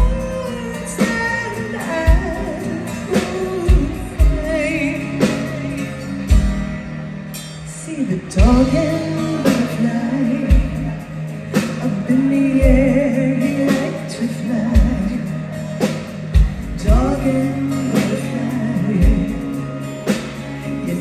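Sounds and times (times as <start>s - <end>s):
women singing: 0.0s - 6.0s, 7.9s - 11.0s, 11.8s - 15.5s, 16.8s - 19.5s
live rock band playing: 0.0s - 21.0s.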